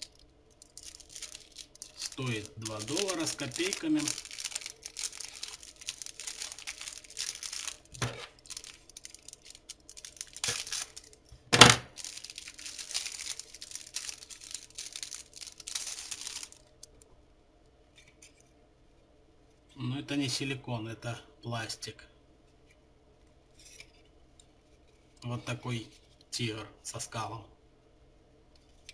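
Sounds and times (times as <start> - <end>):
plastic bag crinkling: 0.0 - 17.0
plastic cracking: 0.0 - 17.0.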